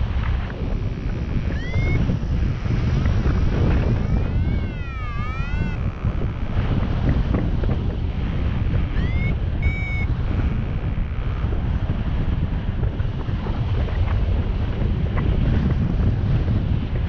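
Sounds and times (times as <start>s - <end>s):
wind buffeting microphone: 0.0s - 17.0s
short high tones: 3.8s - 5.8s, 8.9s - 10.1s.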